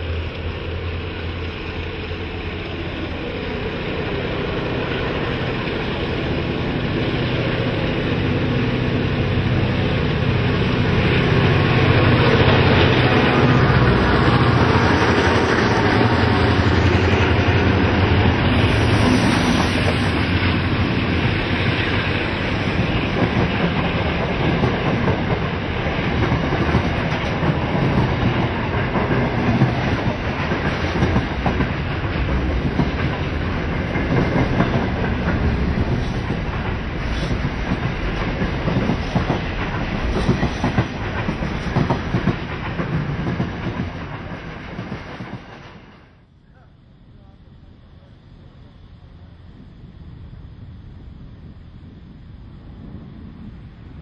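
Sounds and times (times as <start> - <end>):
locomotive diesel engines: 0.0 - 27.8
train wheels clattering on rails: 5.0 - 46.1.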